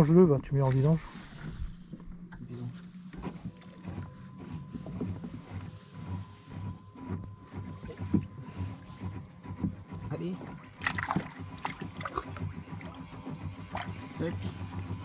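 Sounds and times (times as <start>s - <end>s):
steady low hum: 0.0s - 15.0s
thin steady whine: 0.0s - 15.0s
hands moving in water: 10.5s - 12.9s.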